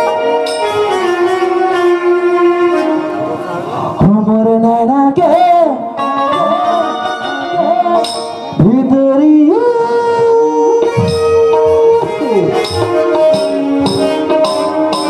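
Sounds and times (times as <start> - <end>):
electronic keyboard melody: 0.0 - 15.0
hand drum strokes: 10.8 - 15.0.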